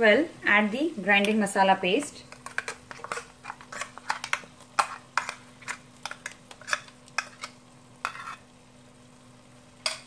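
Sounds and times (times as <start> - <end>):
wooden spatula scraping and tapping: 2.3 - 8.4.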